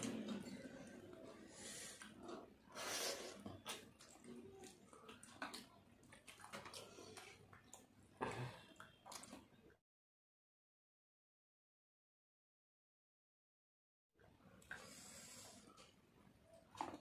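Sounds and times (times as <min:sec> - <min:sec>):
wet chewing and lip smacking: 0:03.2 - 0:07.9, 0:08.7 - 0:09.8.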